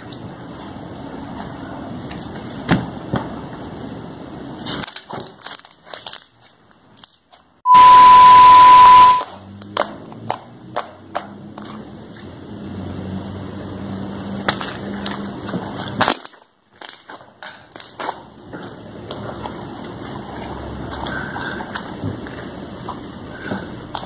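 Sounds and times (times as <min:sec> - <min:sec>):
low hum: 0:07.7 - 0:09.2
high beep: 0:07.7 - 0:09.3.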